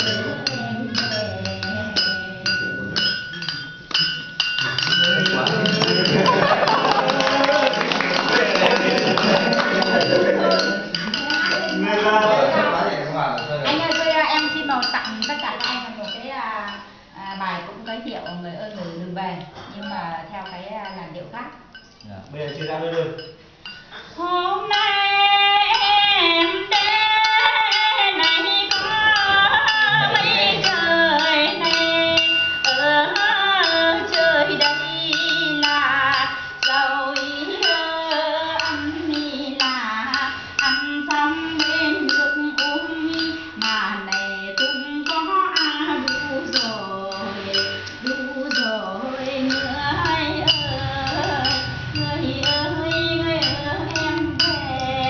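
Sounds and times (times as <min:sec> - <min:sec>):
woman singing folk song: 0:24.2 - 0:55.0
low hum: 0:49.1 - 0:55.0.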